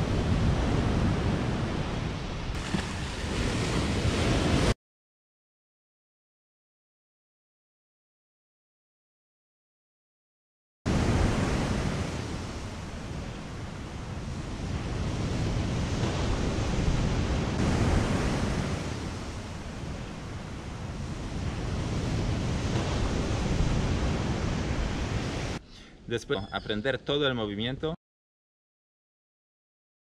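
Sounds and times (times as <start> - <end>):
wind buffeting the microphone: 0.0 - 4.7, 10.9 - 25.6
ocean surf on a beach: 0.0 - 4.8, 10.9 - 25.6.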